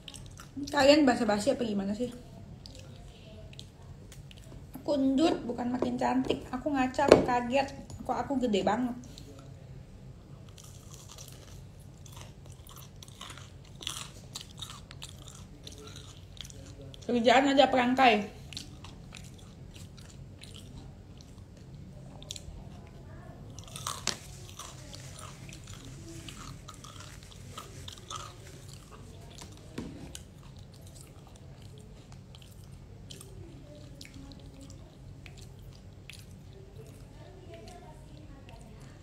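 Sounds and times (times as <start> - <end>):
low steady hum: 0.0 - 39.0
crunchy chewing: 10.4 - 17.1, 18.4 - 39.0.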